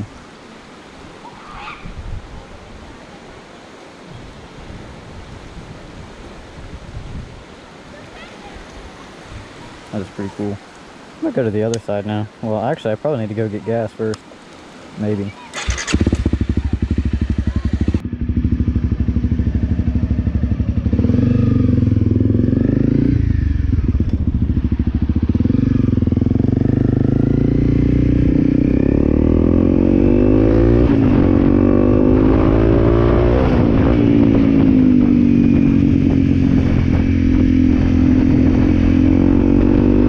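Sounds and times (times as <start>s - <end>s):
motorcycle engine accelerating: 15.6s - 40.0s.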